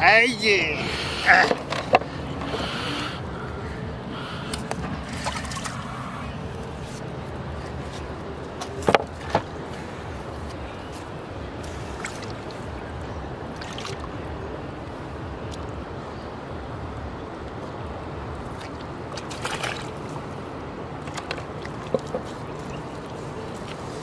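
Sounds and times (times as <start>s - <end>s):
steady low rumble: 0.0s - 19.2s
water splashing in a plastic tub: 11.6s - 12.7s, 13.4s - 14.2s, 18.4s - 20.3s.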